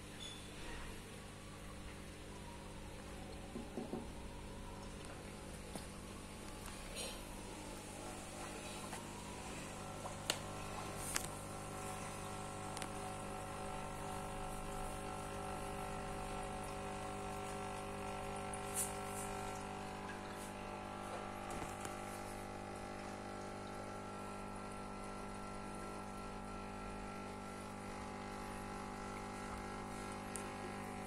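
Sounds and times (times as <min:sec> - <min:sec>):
aquarium filter motor hum: 0:00.0 - 0:31.0.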